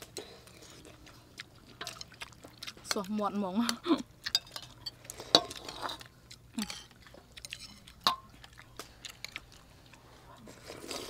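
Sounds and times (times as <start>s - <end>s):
chewing: 0.0s - 11.0s
metal spoons clinking on plates: 4.3s - 6.0s, 6.6s - 8.3s.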